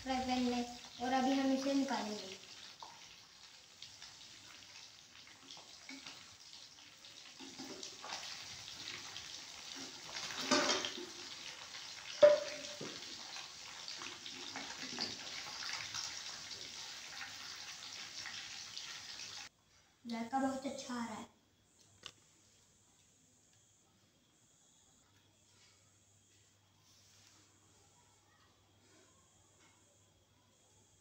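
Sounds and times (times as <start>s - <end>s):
fish sizzling in a pan: 0.0s - 19.5s
spoon clinking against pan: 12.2s - 12.8s.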